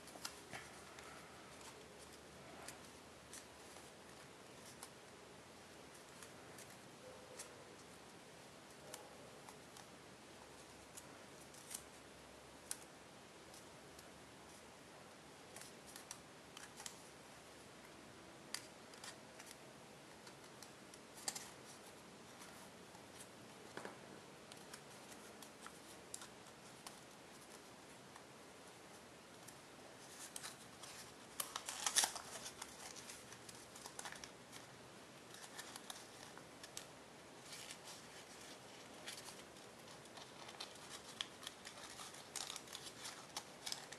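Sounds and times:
steady low hiss: 0.0s - 43.9s
foil paper crinkling: 30.0s - 34.7s, 35.3s - 43.9s.

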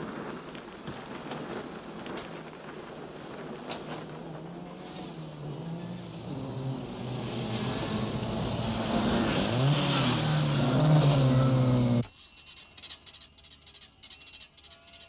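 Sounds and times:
car engines revving past: 3.9s - 12.1s.

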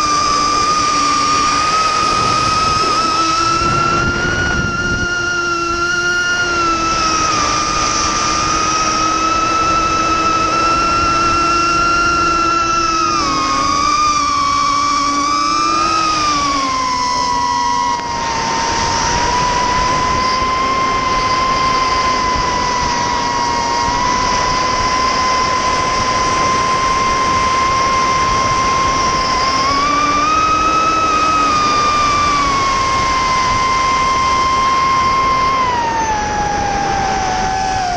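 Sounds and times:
quadcopter motors whining: 0.0s - 37.9s
wind rushing: 0.7s - 9.0s.

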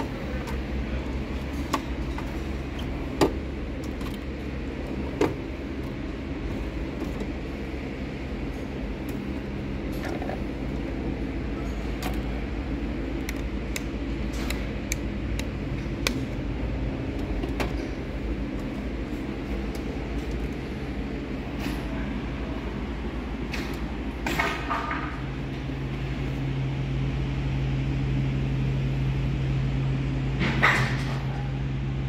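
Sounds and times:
machinery hum: 0.0s - 32.0s.

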